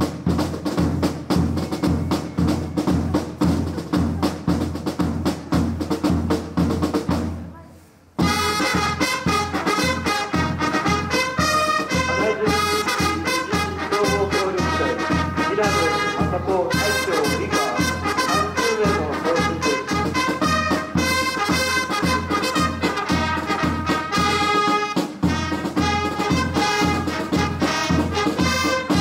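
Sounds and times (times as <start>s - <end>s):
steady drum beat: 0.0s - 7.5s, 8.2s - 29.0s
brass band playing: 8.2s - 29.0s.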